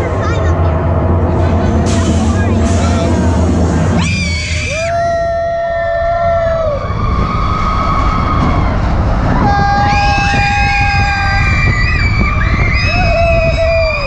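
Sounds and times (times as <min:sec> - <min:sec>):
roller coaster rumble: 0:00.0 - 0:14.0
riders screaming: 0:04.0 - 0:14.0.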